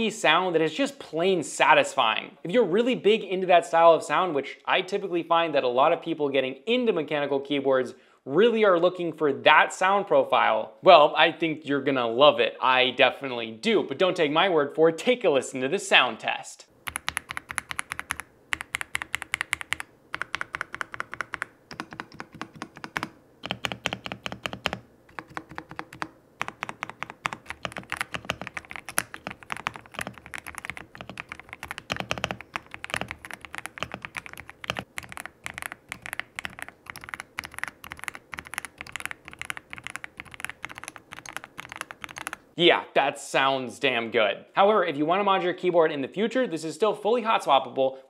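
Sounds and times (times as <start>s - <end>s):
mechanical keyboard typing: 16.8s - 42.4s.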